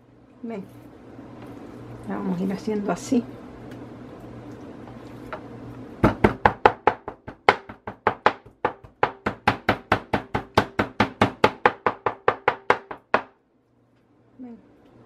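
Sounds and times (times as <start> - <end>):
meat mallet pounding on cutting board: 6.0 - 13.3.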